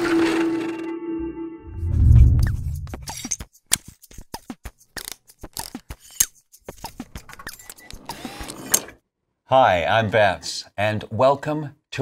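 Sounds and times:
deep low boom: 1.7 - 3.1.

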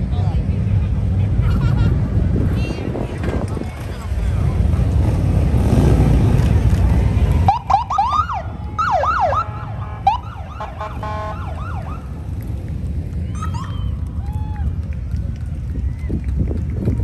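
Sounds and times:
wind buffeting microphone: 2.0 - 7.5, 11.8 - 17.0
police motorcycle sirens chirping: 3.8 - 15.3.

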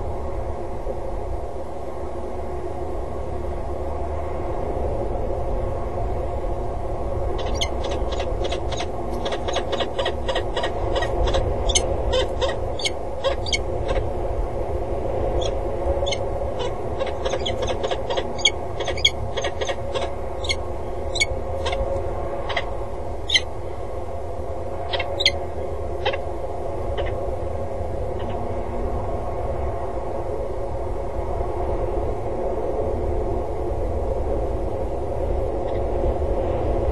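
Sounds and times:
low hum: 0.0 - 36.9
falcons calling: 7.4 - 14.1, 15.4 - 23.5, 24.8 - 26.2.

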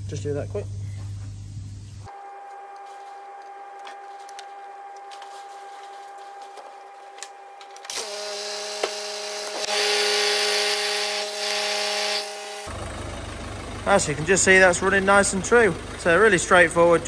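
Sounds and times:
drive belt whine: 0.0 - 17.0
diesel engine running: 8.6 - 17.0.

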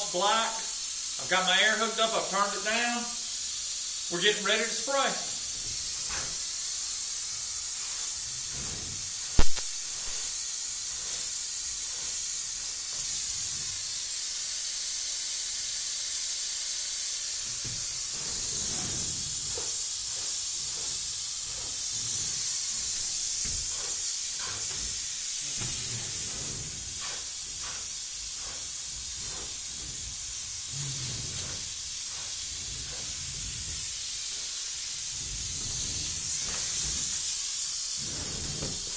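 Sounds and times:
spray gun hissing: 0.0 - 38.9
sharp click: 9.4 - 10.2.

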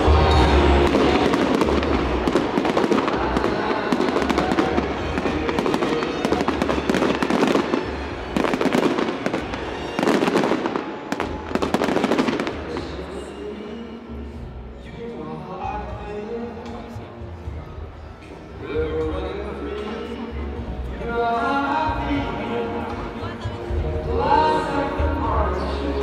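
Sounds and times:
fireworks crackling: 0.0 - 14.0.

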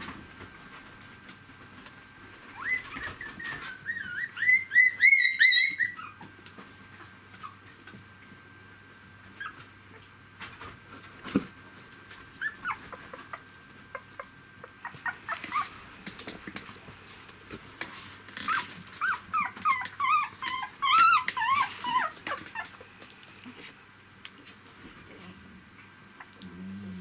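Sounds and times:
puppies whimpering and squeaking: 2.4 - 6.3, 9.3 - 9.7, 12.3 - 16.0, 18.4 - 22.9.

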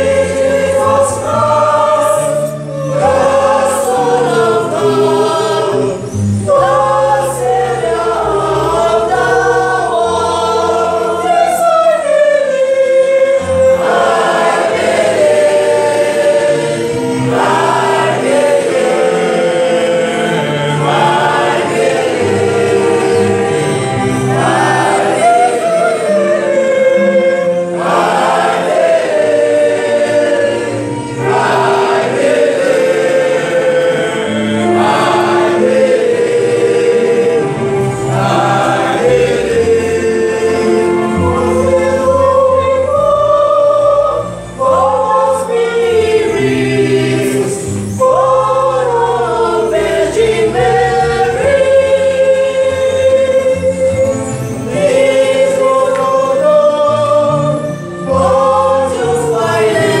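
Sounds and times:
choir singing: 0.0 - 60.0.

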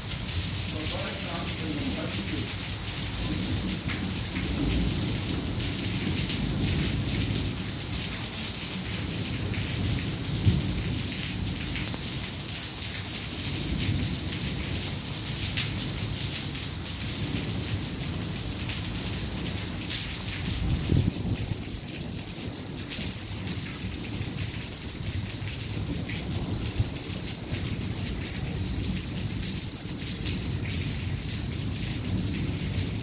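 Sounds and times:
heavy rain hissing: 0.0 - 33.0
low rolling thunder: 0.8 - 8.0, 8.7 - 12.2, 20.4 - 22.4, 23.0 - 33.0.

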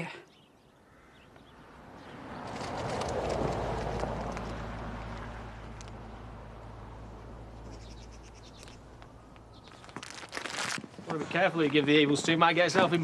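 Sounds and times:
faint bird chirps: 0.1 - 2.2
vehicle passing: 1.5 - 9.9.

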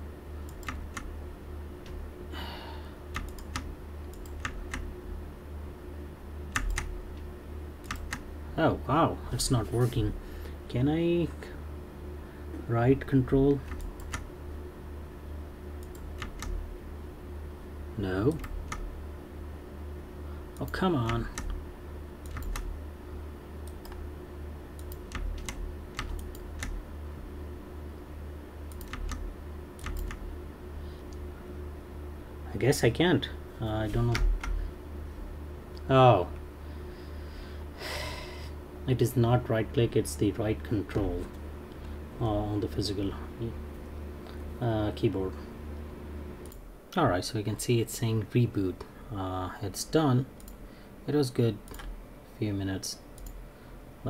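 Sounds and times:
low steady hum: 0.0 - 54.0
computer keyboard keys clicking: 0.5 - 1.1, 3.1 - 4.9, 6.6 - 6.9, 7.8 - 8.3, 13.6 - 14.3, 15.8 - 16.6, 18.3 - 18.8, 20.6 - 21.6, 22.2 - 22.7, 24.8 - 26.8, 28.7 - 30.2.

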